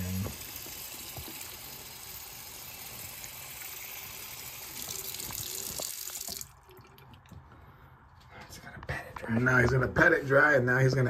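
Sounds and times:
tap running into sink: 0:00.2 - 0:01.5, 0:04.8 - 0:06.5.

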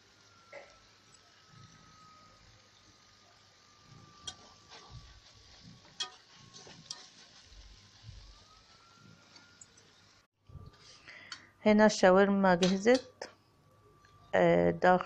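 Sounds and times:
faint frying sizzle: 0:00.0 - 0:13.4
spoon clinking against metal pan: 0:06.0 - 0:06.3, 0:12.6 - 0:13.3.

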